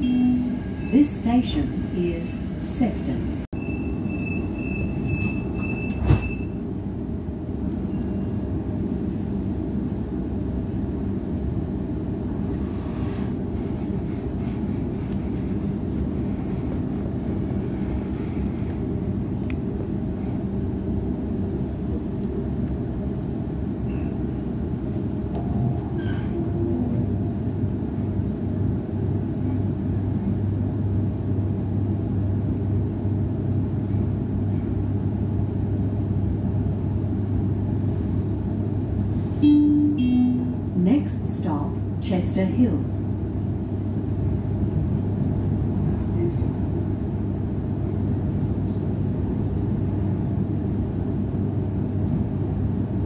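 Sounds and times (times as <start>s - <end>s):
electric train hum and rumble: 0.0s - 53.0s
high steady warning beep: 3.6s - 6.5s, 39.4s - 40.6s
train doors thudding shut: 5.2s - 6.6s.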